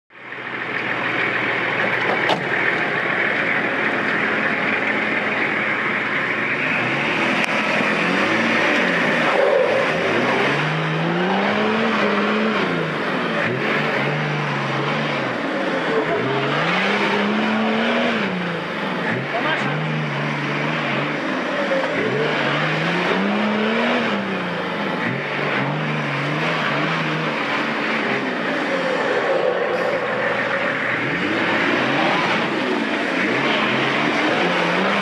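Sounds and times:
off-road engine revving: 0.1s - 35.0s.

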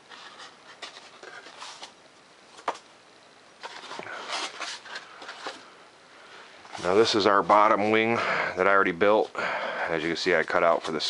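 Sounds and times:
paper rustling: 0.0s - 2.8s, 3.6s - 5.7s.

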